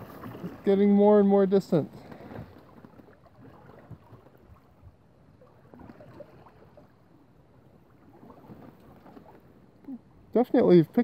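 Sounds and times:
light wind: 0.0 - 11.0
rush of water: 0.0 - 11.0
water lapping against hull: 0.0 - 11.0.

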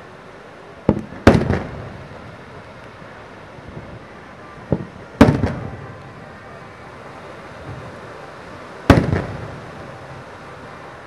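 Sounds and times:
trailing firework reports: 0.0 - 11.0
firework shell bursting: 0.9 - 2.1, 4.7 - 5.9, 8.8 - 9.8.

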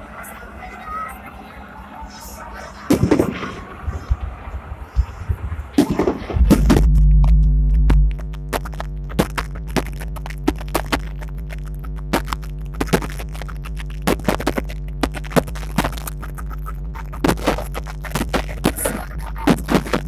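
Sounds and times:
steady low hum: 0.0 - 20.0
fireworks bangs and crackling: 2.9 - 4.5, 5.7 - 6.9.

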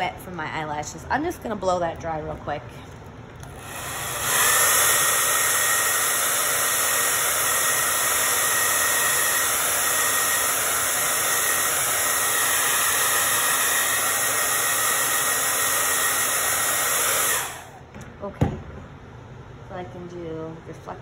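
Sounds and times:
hair dryer running: 3.4 - 17.8.

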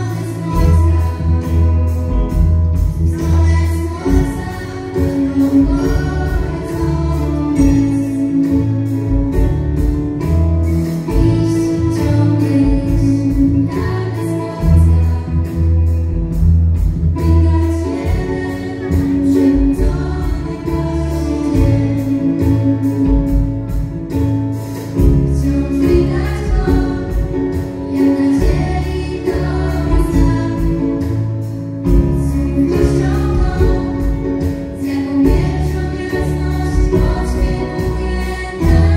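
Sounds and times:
live band playing: 0.0 - 38.9
girls' choir singing pop song: 3.0 - 8.7, 25.4 - 31.2, 32.2 - 38.9
steady drum beat: 14.6 - 38.9.

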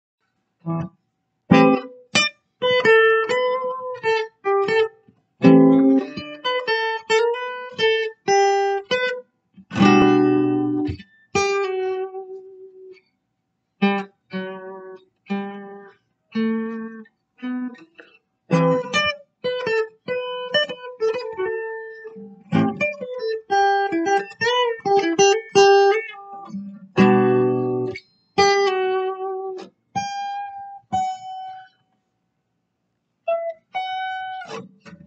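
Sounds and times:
fingerstyle acoustic guitar: 1.5 - 9.0, 9.6 - 12.1, 16.4 - 31.5.

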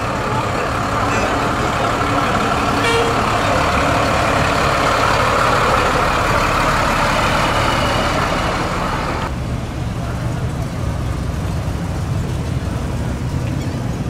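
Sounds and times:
truck engine passing slowly: 0.0 - 14.0.

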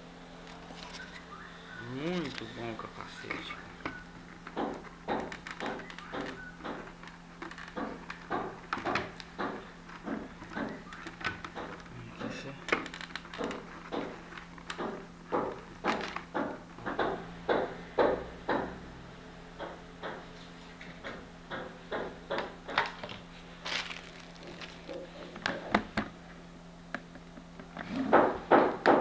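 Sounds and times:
hands handling plastic helmet: 2.2 - 16.3, 22.8 - 26.2.

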